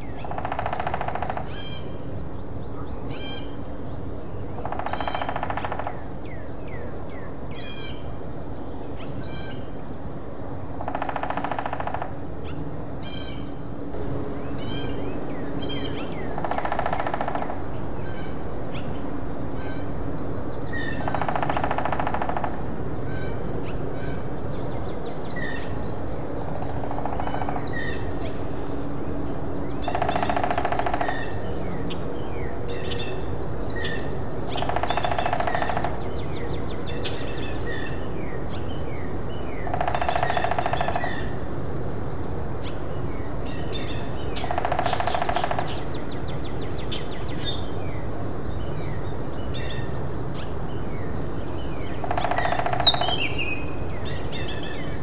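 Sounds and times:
woodpecker drumming on tree: 0.2s - 1.6s, 4.6s - 6.1s, 10.8s - 12.2s, 16.3s - 17.6s, 20.8s - 22.6s, 26.5s - 28.0s, 29.8s - 31.4s, 34.5s - 36.2s, 39.6s - 41.3s, 44.4s - 46.0s, 52.0s - 53.5s.

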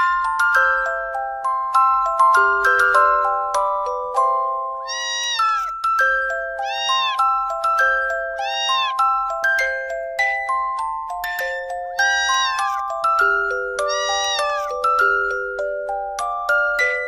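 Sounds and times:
cat meowing: 4.8s - 5.8s, 6.6s - 7.5s, 8.3s - 9.1s, 11.2s - 12.8s, 13.8s - 14.8s.

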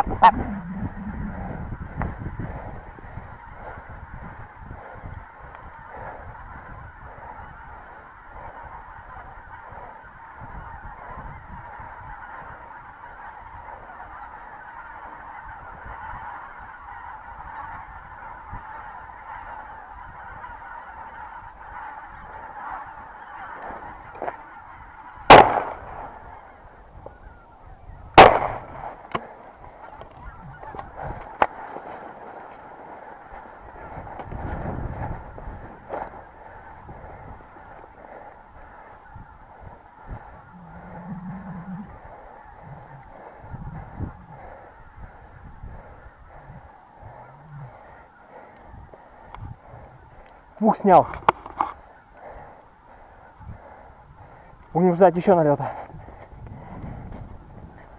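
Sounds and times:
geese honking: 0.0s - 57.9s
shotgun shots: 25.3s - 25.9s, 28.2s - 28.7s.

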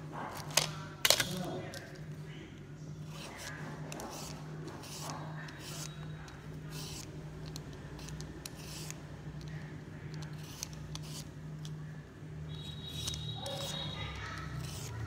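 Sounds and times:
shredder scraping cucumber: 12.6s - 15.0s.

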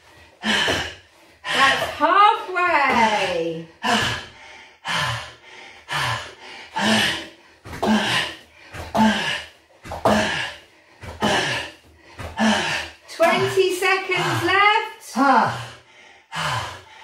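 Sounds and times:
quiet in-breaths: 3.7s - 13.1s, 15.5s - 17.0s.

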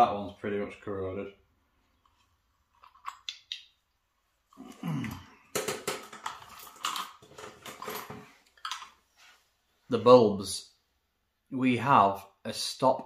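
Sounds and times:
small hard clicks and clinks: 2.0s - 3.8s, 5.5s - 9.0s.

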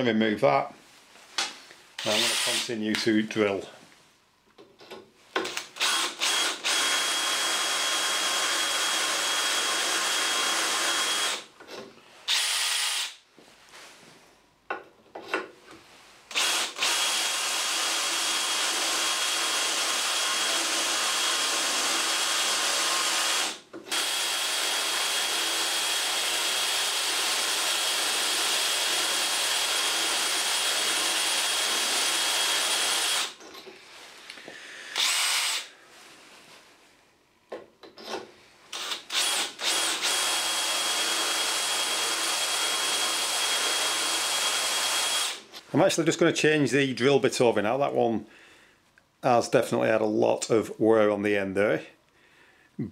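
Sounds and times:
drill motor whining: 2.0s - 2.7s, 5.4s - 11.5s, 12.3s - 13.2s, 16.3s - 33.4s, 34.9s - 35.7s, 38.0s - 45.4s.

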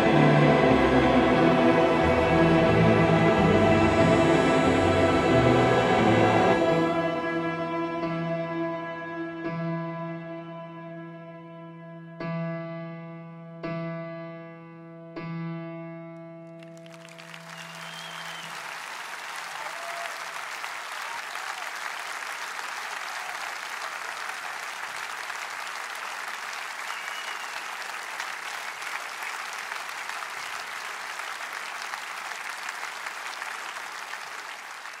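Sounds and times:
audience applauding: 16.6s - 35.0s.

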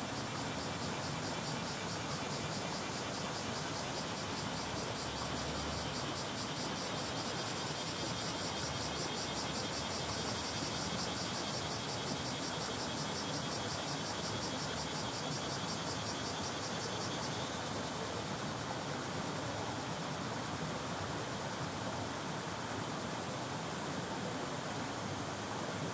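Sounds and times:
cicadas buzzing: 0.0s - 18.6s.

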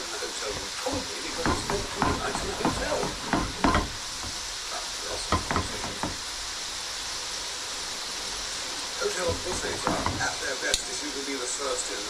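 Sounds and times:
chips sizzling in hot fat: 0.0s - 12.0s
metal tongs knocking on pan: 0.5s - 4.5s, 5.2s - 6.3s, 9.3s - 10.4s.

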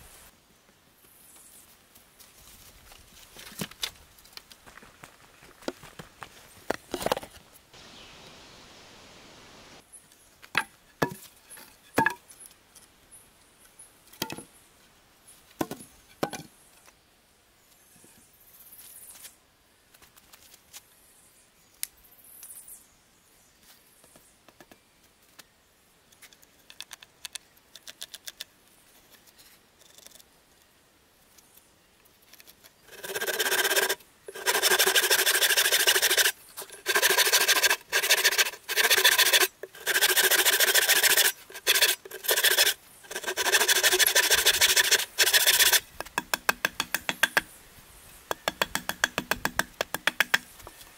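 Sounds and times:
wooden sticks knocking: 12.0s - 12.2s, 44.9s - 47.5s, 48.3s - 50.5s
handsaw cutting wood: 32.9s - 45.8s.

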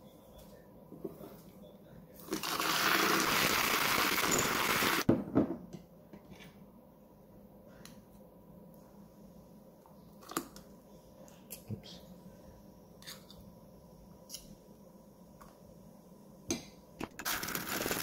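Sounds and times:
milk frother whirring: 2.2s - 5.0s, 17.2s - 18.0s.

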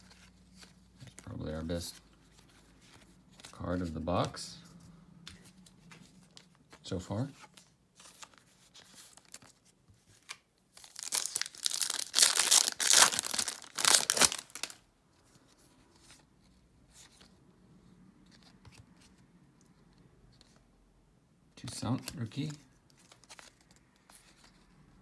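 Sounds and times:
cards being handled: 0.0s - 14.8s, 21.6s - 24.8s
wrapper tearing and crinkling: 10.8s - 14.8s.

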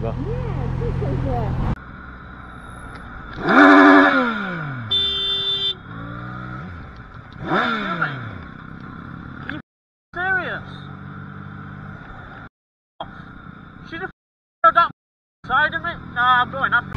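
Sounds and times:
motorcycle engine revving: 0.0s - 9.6s, 10.2s - 12.5s
short horn beep: 4.8s - 5.8s.

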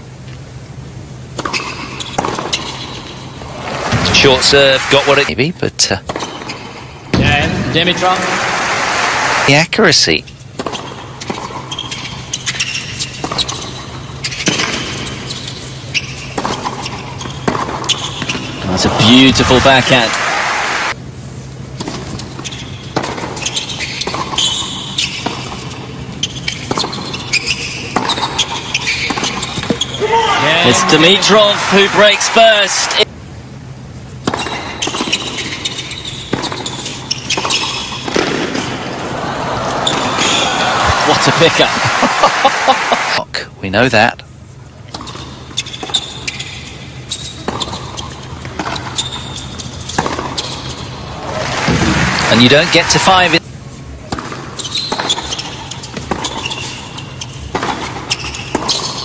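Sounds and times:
shoes squeaking on court: 1.4s - 4.4s, 6.1s - 7.4s, 10.2s - 20.1s, 21.7s - 31.5s, 34.1s - 38.7s, 44.8s - 52.8s, 53.7s - 59.0s
tennis ball bounces: 34.2s - 38.8s, 47.4s - 53.0s, 54.1s - 56.7s, 57.4s - 59.0s.

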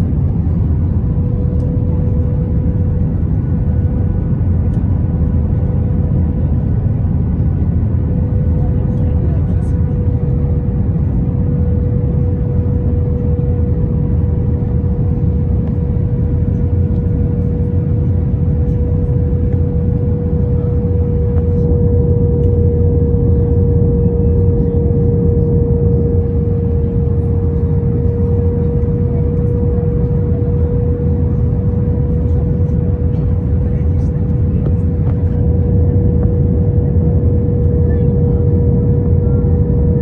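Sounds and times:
airplane cabin engine rumble: 0.0s - 40.0s
constant hum: 0.0s - 40.0s.

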